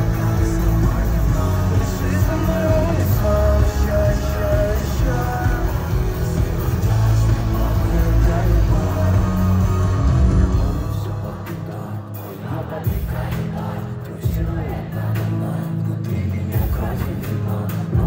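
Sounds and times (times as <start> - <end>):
electric guitar: 0.0 - 11.9
heavy bass: 0.0 - 18.0.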